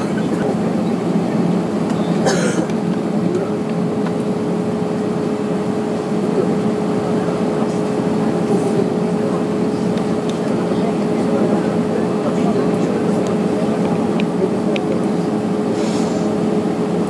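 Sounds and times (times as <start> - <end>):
aircraft cabin drone: 0.0 - 17.0
steady whine: 0.0 - 17.0
brief hiss: 15.7 - 16.3.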